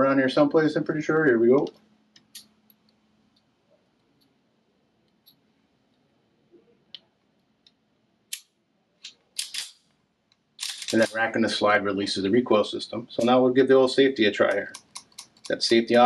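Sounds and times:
small metallic clicks: 7.6 - 11.2, 14.5 - 15.7.

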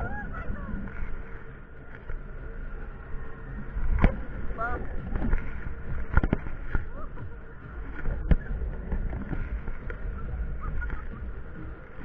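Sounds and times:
funfair ride rumbling: 0.0 - 12.0.

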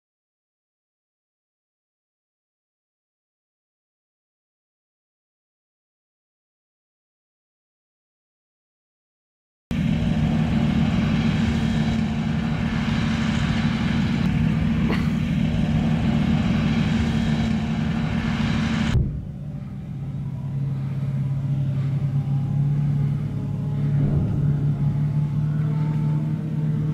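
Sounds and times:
truck engine droning: 9.7 - 26.9.

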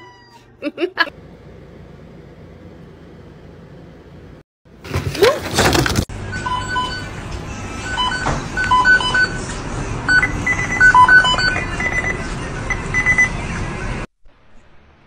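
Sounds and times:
electronic beeps playing tune: 10.1 - 13.3.

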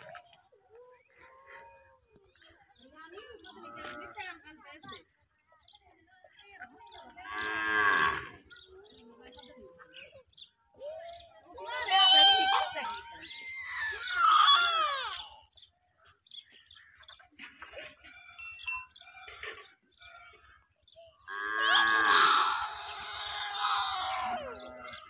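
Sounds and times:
water buffalo calling: 21.4 - 24.9.

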